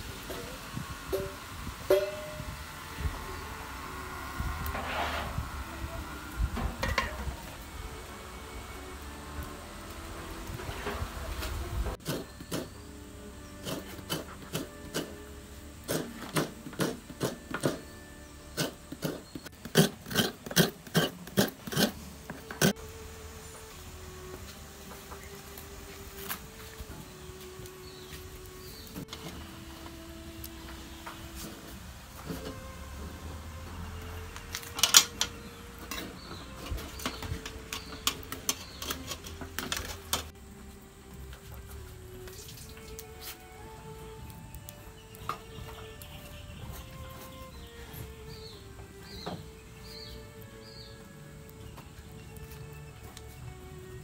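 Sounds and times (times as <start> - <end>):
coconut scraped on serrated blade: 15.8 - 22.8.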